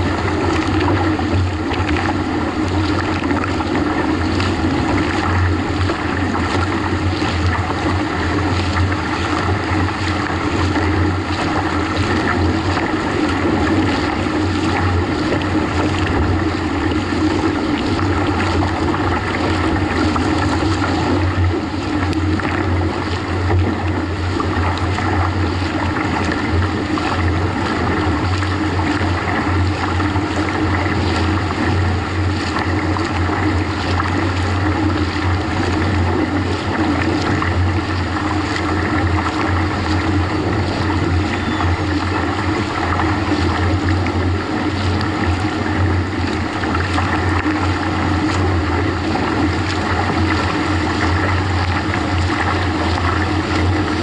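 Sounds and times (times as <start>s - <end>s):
motorboat engine drone: 0.0s - 54.0s
water splashing against kayak: 0.0s - 54.0s.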